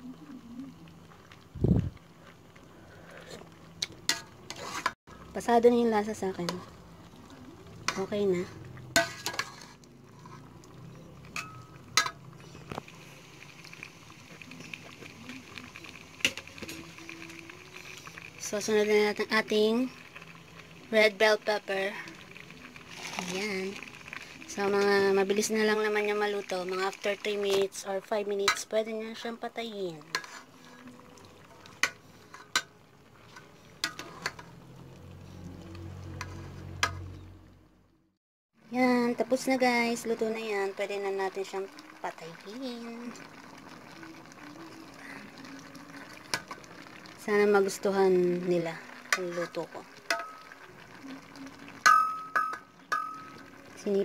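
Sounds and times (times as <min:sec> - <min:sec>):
stew bubbling: 0:00.0 - 0:05.3, 0:06.1 - 0:29.2, 0:29.8 - 0:37.3, 0:39.6 - 0:54.0
metal spatula stirring stew: 0:03.3 - 0:05.0, 0:07.8 - 0:12.7, 0:30.1 - 0:30.9, 0:31.5 - 0:34.6, 0:35.3 - 0:37.2
metal spoon clinking on pot: 0:11.3 - 0:12.2, 0:50.1 - 0:50.5, 0:51.8 - 0:53.4.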